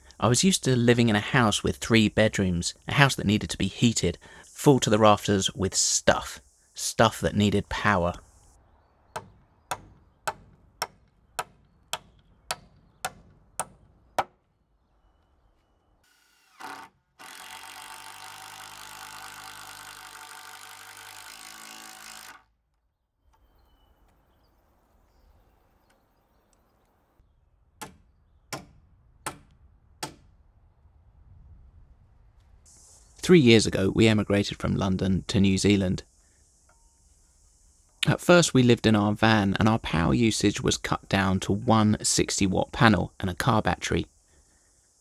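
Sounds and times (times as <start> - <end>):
cordless drill running: 16.0 - 22.5.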